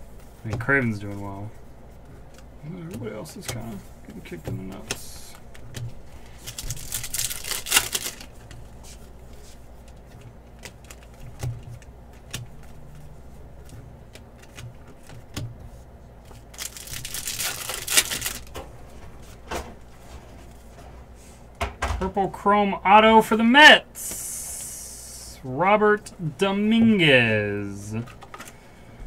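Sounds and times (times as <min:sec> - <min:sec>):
cards clicking and tapping: 0:02.3 - 0:08.2, 0:13.6 - 0:15.6
foil wrappers ripping: 0:06.3 - 0:08.4, 0:16.5 - 0:18.5.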